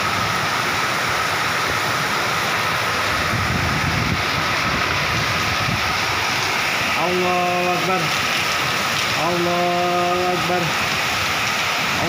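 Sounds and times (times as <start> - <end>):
heavy rain on roofs: 0.0 - 12.0
wind surging: 2.6 - 12.0.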